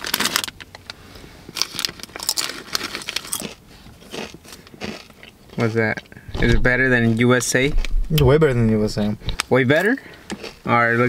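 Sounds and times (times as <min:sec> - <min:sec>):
chip bag crinkling: 0:00.0 - 0:05.1.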